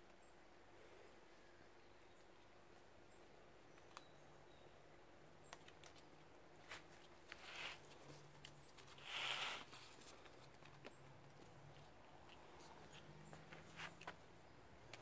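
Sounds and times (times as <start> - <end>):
kittens scuffling and tapping: 5.5 - 15.0.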